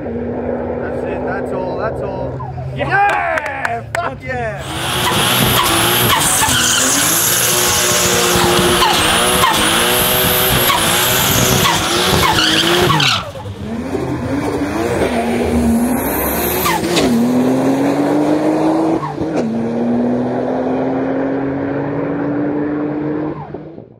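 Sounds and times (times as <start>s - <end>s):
car engine revving: 0.0s - 2.8s, 4.6s - 23.9s
tyre screech: 4.6s - 14.1s, 15.7s - 17.2s.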